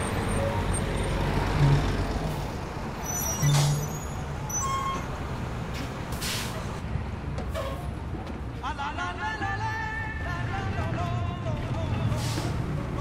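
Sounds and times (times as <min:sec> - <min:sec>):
bus engine idling: 0:00.0 - 0:06.8, 0:09.6 - 0:13.0
air brake hisses: 0:06.1 - 0:06.7, 0:12.1 - 0:12.6.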